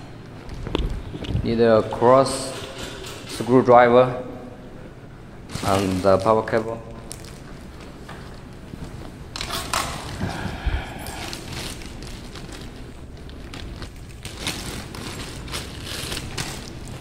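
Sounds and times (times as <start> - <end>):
plastic bag rustling: 5.4 - 17.0.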